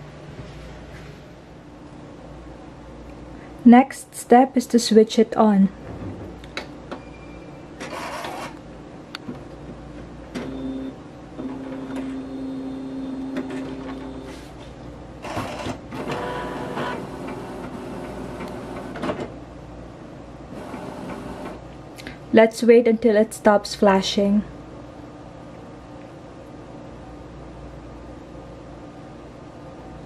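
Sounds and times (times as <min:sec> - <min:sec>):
printer motor whine: 0:07.8 - 0:08.6, 0:10.3 - 0:14.4, 0:15.2 - 0:19.2, 0:20.5 - 0:21.6
printer whirring and rattling: 0:07.8 - 0:08.6, 0:09.3 - 0:19.4, 0:20.4 - 0:21.7
printer clicking: 0:20.6 - 0:21.6.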